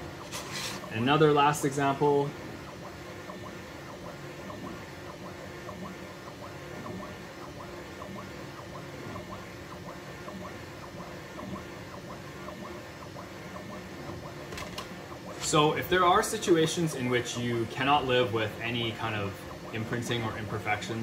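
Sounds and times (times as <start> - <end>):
printer machine hum: 0.0 - 21.0.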